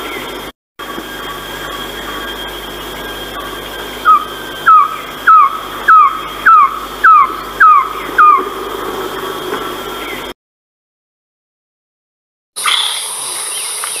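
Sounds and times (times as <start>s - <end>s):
thin high tone: 0.8s - 10.3s
bird calling downward notes: 1.1s - 10.3s.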